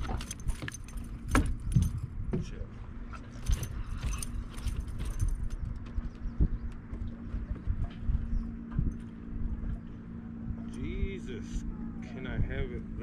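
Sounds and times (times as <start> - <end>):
clicking and metallic rattling: 0.0 - 2.0, 3.3 - 5.9
low rumble: 0.0 - 13.0.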